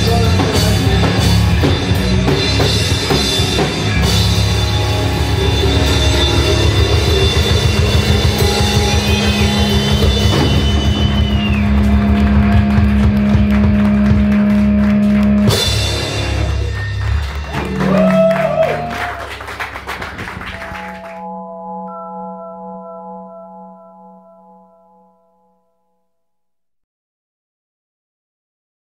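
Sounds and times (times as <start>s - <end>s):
wavering guitar tones: 0.0s - 15.7s, 20.4s - 26.2s
drum and cymbal hits: 0.0s - 18.3s
live rock band playing: 0.0s - 23.4s.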